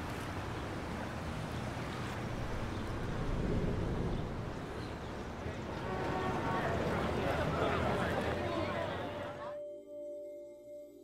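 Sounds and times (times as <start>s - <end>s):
street ambience hiss: 0.0s - 9.5s.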